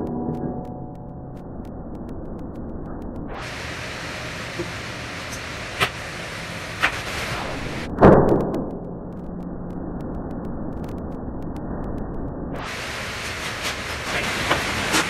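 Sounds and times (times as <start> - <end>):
fire flaring on grill: 1.9 - 15.0
kitchen hiss: 3.4 - 7.9, 12.7 - 15.0.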